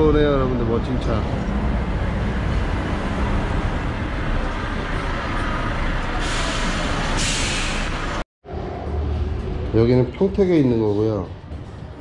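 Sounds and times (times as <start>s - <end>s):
air brake hiss: 6.2s - 8.2s.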